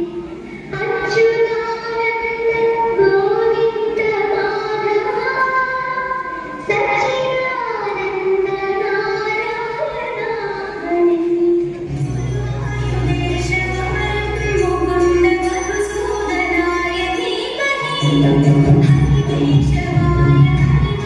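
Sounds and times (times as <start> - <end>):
women singing long gliding notes: 11.2 - 21.0.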